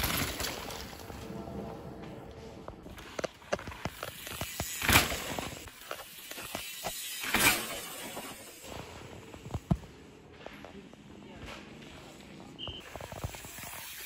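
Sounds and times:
mountain bike rattling over rocks: 0.0 - 1.2, 2.9 - 9.7, 12.8 - 14.0.

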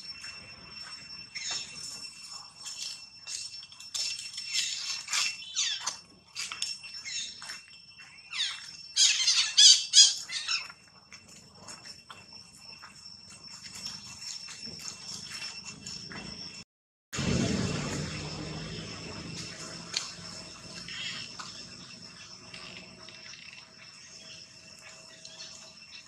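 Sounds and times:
faint high whine: 0.0 - 16.6, 17.2 - 26.0
animal squeals and squawks: 8.3 - 10.7.

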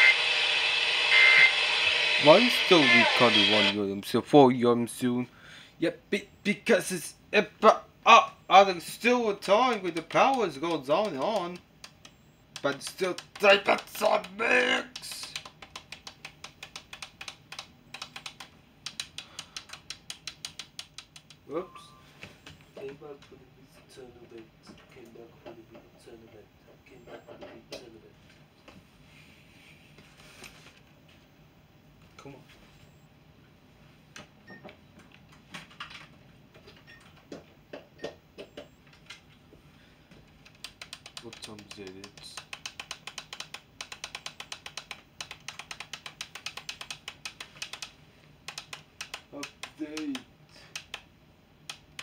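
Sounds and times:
faint clicking and tapping: 9.0 - 21.5, 34.1 - 52.0
computer keyboard typing: 9.4 - 21.4, 40.3 - 52.0.

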